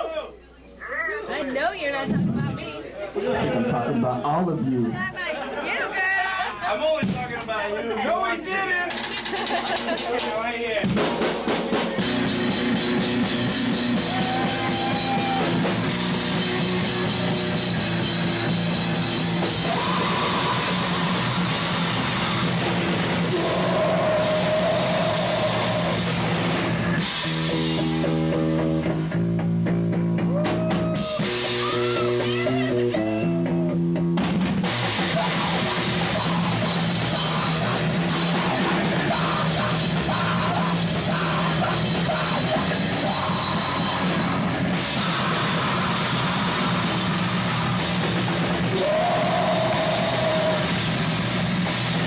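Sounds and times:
live rock band playing: 8.9s - 52.0s.

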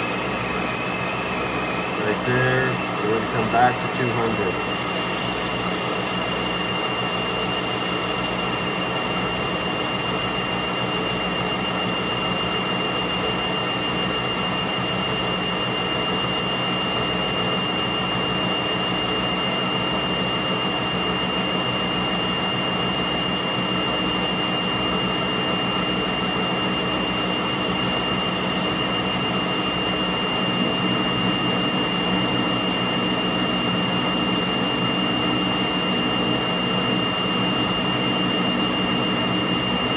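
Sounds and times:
metal lathe whining: 0.0s - 39.9s.

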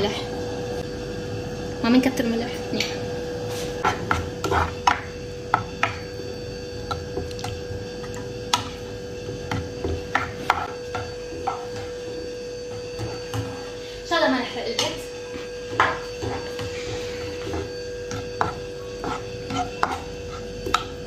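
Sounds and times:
steady hum: 0.0s - 21.0s
spatula knocking and scraping pan: 3.8s - 6.0s, 8.5s - 12.0s, 15.7s - 21.0s
spatula stirring tomatoes in a pan: 17.4s - 20.4s.

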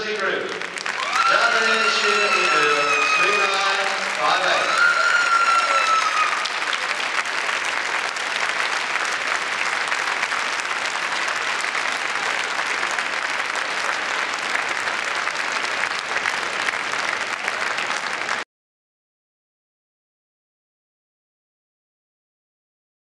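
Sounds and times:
crowd applauding: 0.0s - 18.4s.

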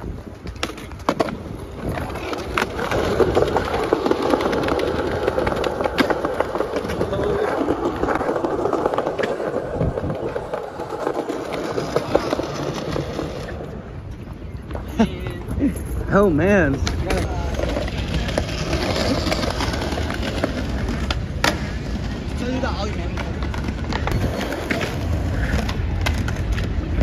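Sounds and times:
skateboard wheels rolling on stone: 0.0s - 27.0s.

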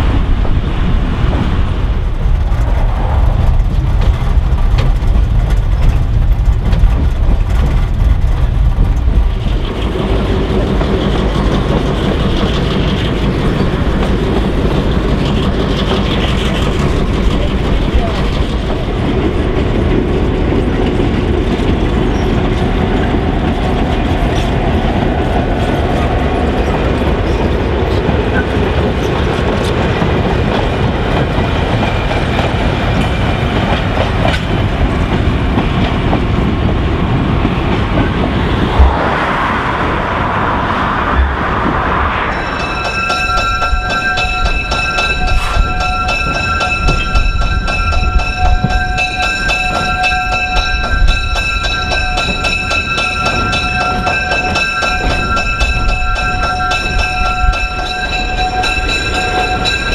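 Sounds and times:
diesel locomotive engine running: 0.0s - 59.9s
train wheels clicking over rail joints: 0.3s - 38.8s, 42.4s - 59.9s
car passing: 38.1s - 43.4s.

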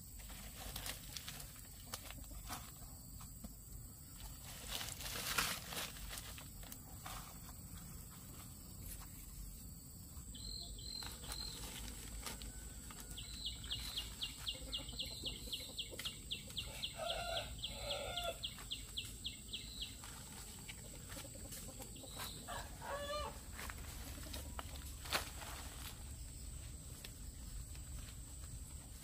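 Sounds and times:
chickens clucking: 0.4s - 3.1s, 4.0s - 29.0s
chickens peeping: 6.7s - 29.0s.

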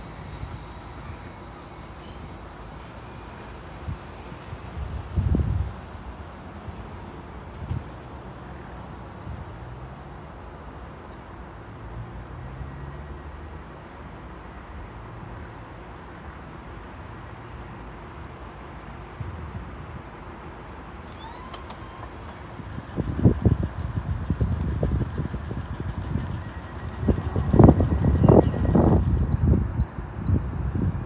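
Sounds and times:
distant train rumble: 20.9s - 29.2s.

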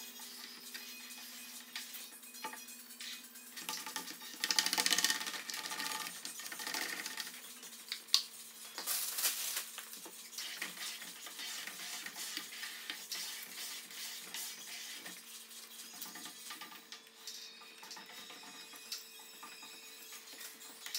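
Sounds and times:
plastic squeegee scraping wet film: 3.7s - 7.3s.

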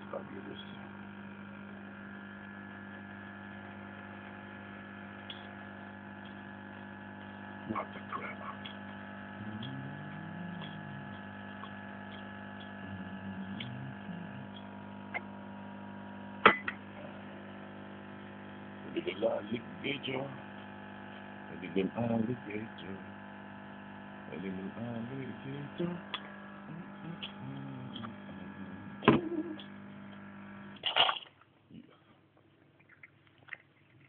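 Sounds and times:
espresso machine pump humming: 0.0s - 30.8s.

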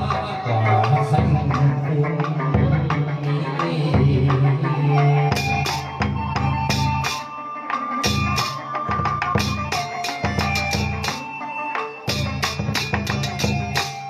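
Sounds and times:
sharp quick percussion strikes: 5.3s - 14.0s.

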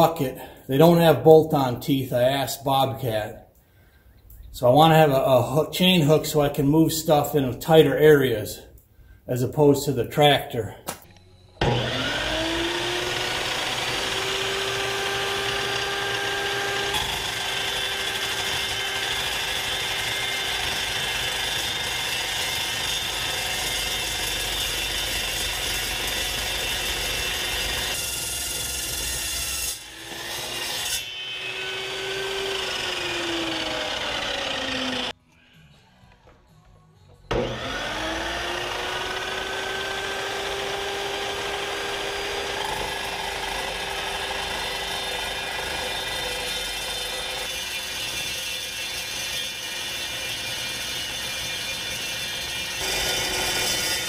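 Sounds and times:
saw motor whine: 11.1s - 28.0s, 29.8s - 35.2s, 37.3s - 54.0s
saw cutting steel: 11.6s - 35.2s, 37.3s - 54.0s.

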